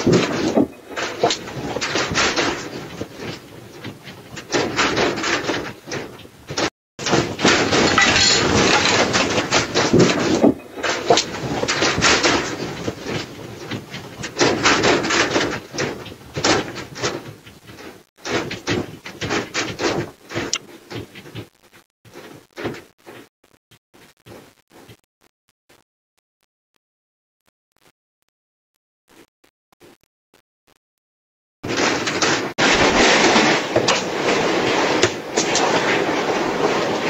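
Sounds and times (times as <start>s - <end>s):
shop goods rattling and banging: 0.0s - 21.4s, 31.6s - 37.0s.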